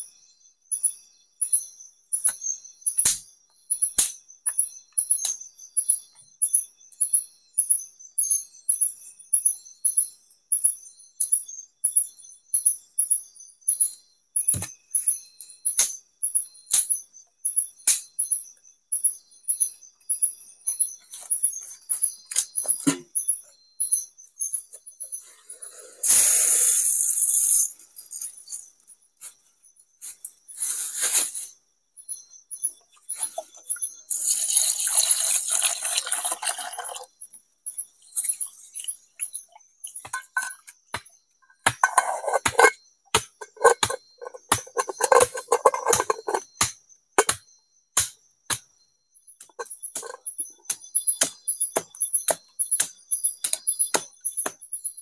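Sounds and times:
high repeated insect chirp: 0:00.0 - 0:55.0
water pouring into a pot: 0:34.1 - 0:37.1.

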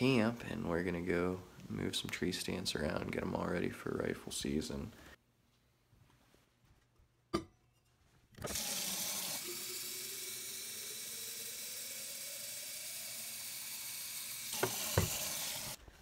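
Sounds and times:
faucet filling steel bottle: 0:08.5 - 0:15.8.

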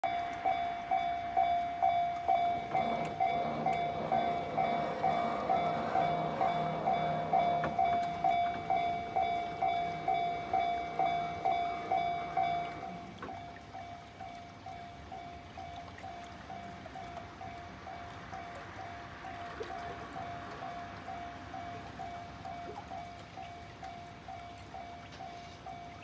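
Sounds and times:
level crossing warning bell: 0:00.0 - 0:26.0.

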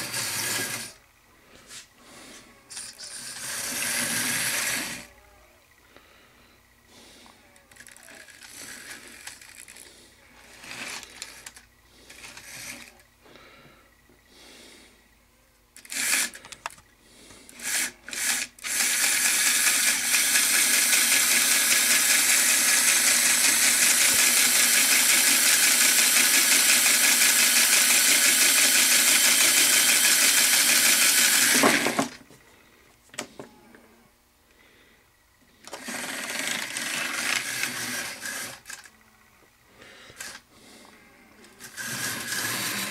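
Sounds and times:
model train motor whirring: 0:00.0 - 0:01.0, 0:02.7 - 0:05.2, 0:07.5 - 0:13.1, 0:15.8 - 0:16.8, 0:17.5 - 0:32.2, 0:35.6 - 0:39.0, 0:40.1 - 0:40.5, 0:41.5 - 0:42.9.

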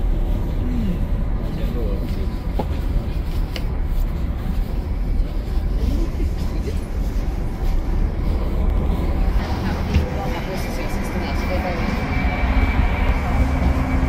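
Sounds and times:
train rumble inside carriage: 0:00.0 - 0:14.0
distant voices: 0:04.4 - 0:14.0.

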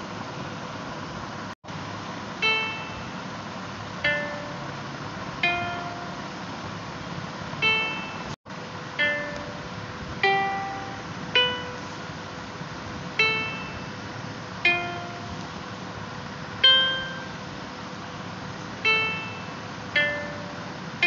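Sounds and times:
plucked string notes: 0:05.4 - 0:06.2, 0:09.0 - 0:12.0, 0:14.7 - 0:15.4.

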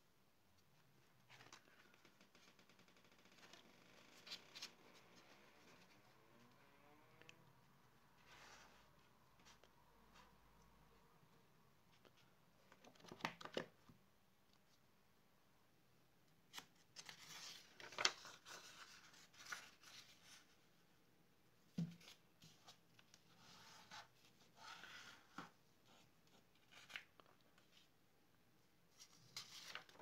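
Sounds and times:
paper rustling and scraping: 0:08.2 - 0:10.3, 0:16.5 - 0:20.6, 0:29.0 - 0:30.0.

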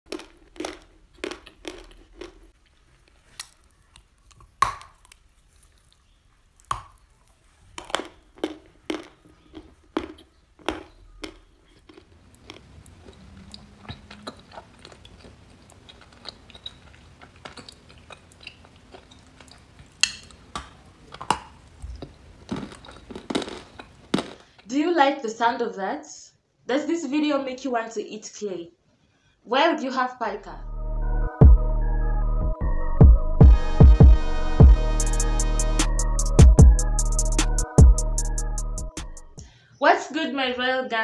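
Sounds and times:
chewing crunchy clay: 0:00.1 - 0:24.5.

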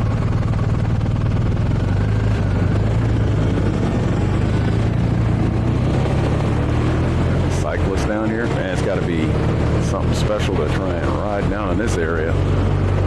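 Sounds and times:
motorcycle engine running: 0:00.0 - 0:13.0
road noise: 0:00.0 - 0:13.0.

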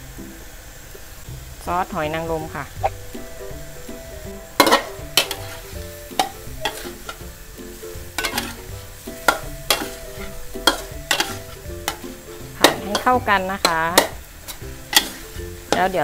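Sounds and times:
meat sizzling: 0:00.0 - 0:16.0
soft background music: 0:00.0 - 0:16.0
metal spatula scraping a wok: 0:04.3 - 0:16.0.

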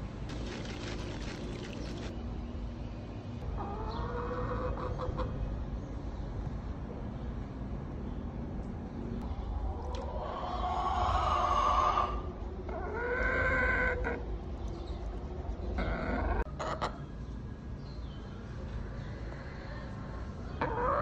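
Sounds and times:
salt pouring into water: 0:00.3 - 0:02.1.

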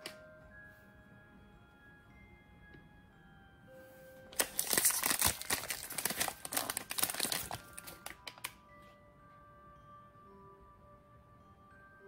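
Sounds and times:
plastic wrapper crinkling: 0:04.3 - 0:08.6.

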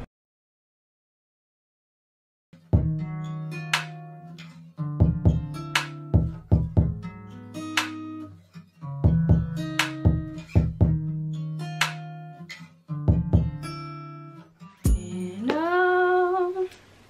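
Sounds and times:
plucked notes: 0:02.6 - 0:16.2.

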